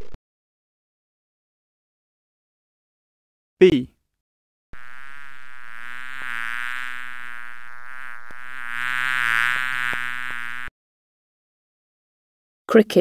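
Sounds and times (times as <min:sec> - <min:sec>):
bee buzzing: 0:04.8 - 0:10.7.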